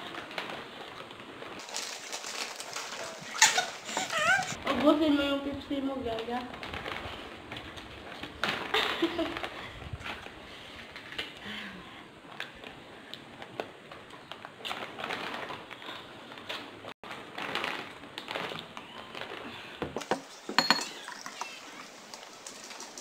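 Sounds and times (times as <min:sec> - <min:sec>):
plastic bag crinkling: 0:00.0 - 0:10.3, 0:14.2 - 0:19.7
chips crunching: 0:01.6 - 0:04.4
glasses and bottle clicking: 0:20.1 - 0:21.0.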